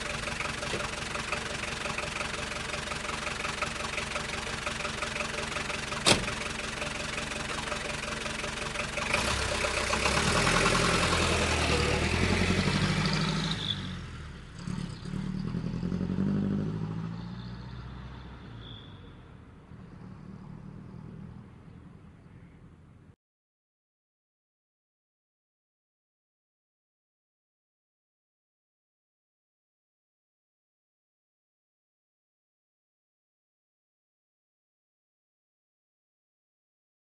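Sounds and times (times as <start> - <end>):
taxi engine idling and revving: 0.0 - 23.1.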